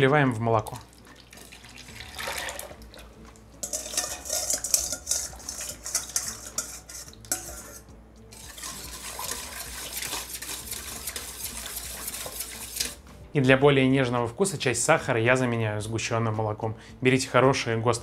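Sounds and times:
whisk scraping a saucepan: 0:03.6 - 0:13.1.

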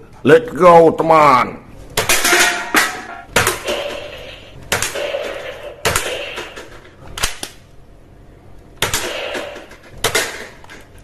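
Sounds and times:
toy gun shots: 0:03.3 - 0:07.5, 0:08.8 - 0:10.7.

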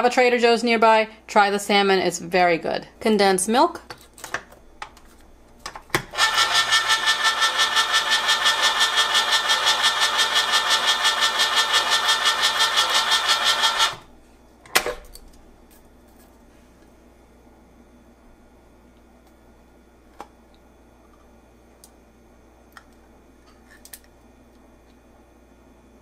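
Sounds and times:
electric can opener motor hum: 0:06.0 - 0:14.1.

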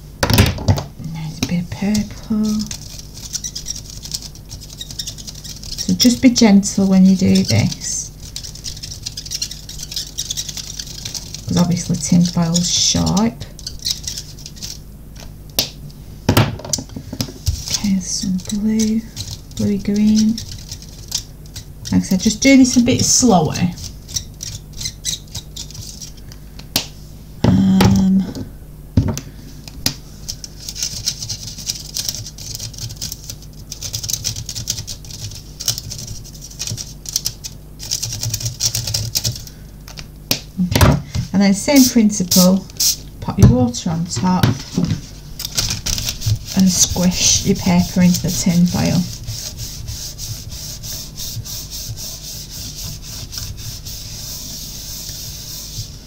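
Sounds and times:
aluminium foil crackling: 0:01.2 - 0:15.2, 0:17.6 - 0:26.3, 0:45.4 - 0:49.7.

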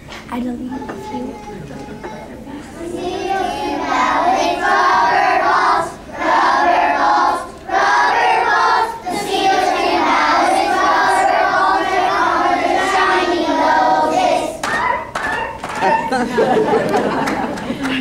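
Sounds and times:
children singing together: 0:01.0 - 0:17.6.

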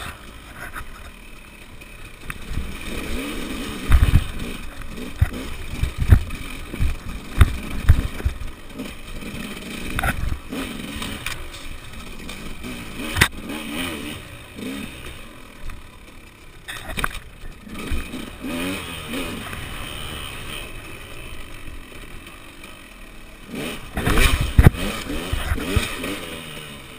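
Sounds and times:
dirt bike engine revving: 0:00.0 - 0:26.9.

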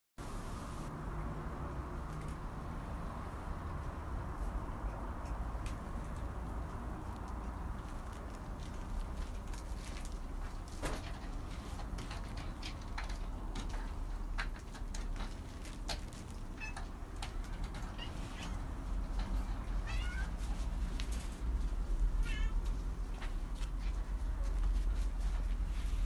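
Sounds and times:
cats meowing: 0:16.5 - 0:20.5, 0:22.1 - 0:22.7.

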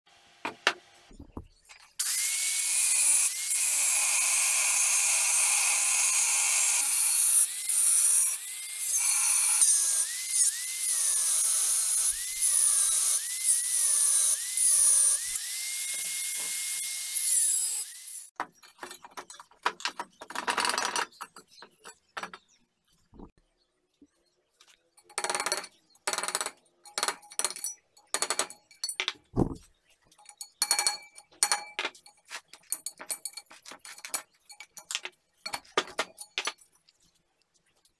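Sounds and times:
angle grinder cutting metal: 0:02.0 - 0:18.3.

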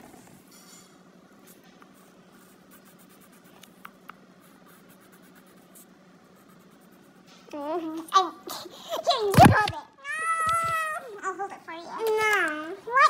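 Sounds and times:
pencil scratching on paper: 0:02.0 - 0:03.6, 0:04.4 - 0:07.3.

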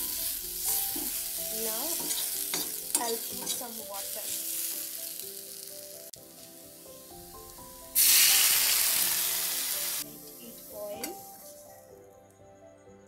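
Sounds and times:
water hitting hot oil hissing: 0:00.0 - 0:11.3
masala sizzling in oil: 0:00.0 - 0:11.8.

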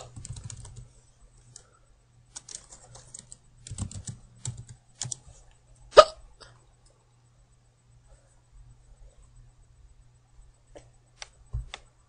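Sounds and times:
computer keyboard typing: 0:00.0 - 0:01.7, 0:02.3 - 0:05.3
person hiccuping: 0:06.0 - 0:06.2.

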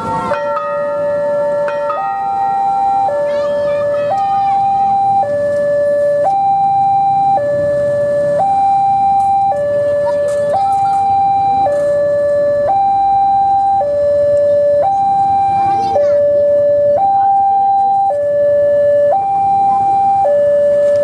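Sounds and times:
two-tone crossing alarm: 0:00.0 - 0:21.0.

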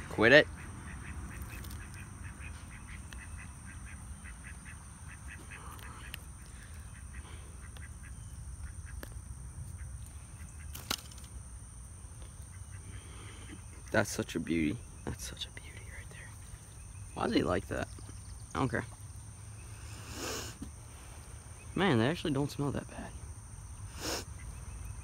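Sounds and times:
ducks quacking: 0:00.0 - 0:09.1.

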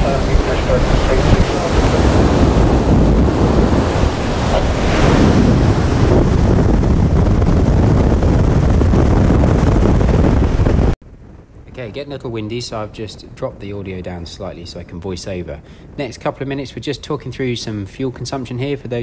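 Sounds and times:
rush of boat wake: 0:00.0 - 0:11.0
wind buffeting microphone: 0:00.0 - 0:19.0.

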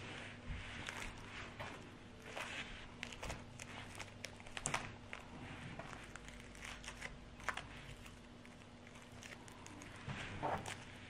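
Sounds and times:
sticky slime crackles: 0:00.5 - 0:11.0.

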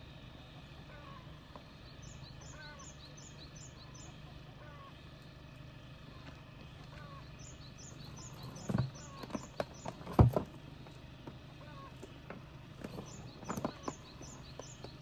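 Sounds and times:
steady low hum: 0:00.0 - 0:15.0
sharp knocks and thumps: 0:08.3 - 0:10.6.

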